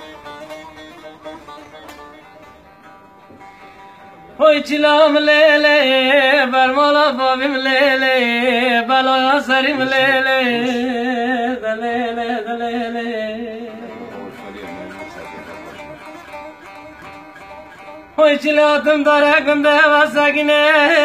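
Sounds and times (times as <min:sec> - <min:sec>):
long-necked lute playing: 0:00.0 - 0:21.0
man singing a lament: 0:04.4 - 0:14.2, 0:18.2 - 0:21.0.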